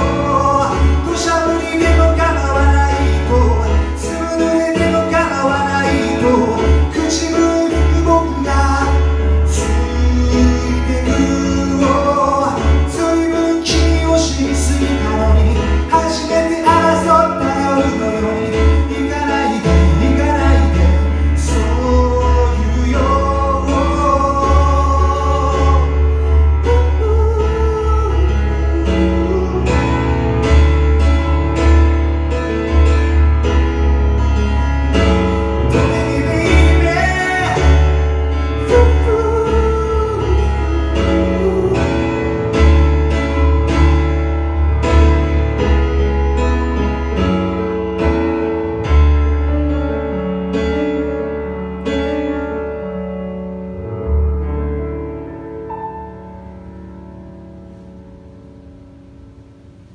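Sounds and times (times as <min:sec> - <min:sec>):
man singing: 0:00.0 - 0:30.6, 0:35.0 - 0:43.1
digital piano chords: 0:00.0 - 0:59.9.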